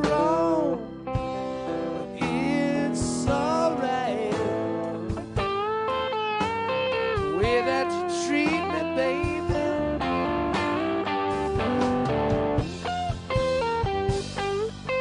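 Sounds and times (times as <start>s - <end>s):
man singing: 0.0s - 1.0s, 2.1s - 5.1s, 7.2s - 10.3s
band backing: 0.0s - 15.0s
electric guitar with bent notes: 0.0s - 15.0s.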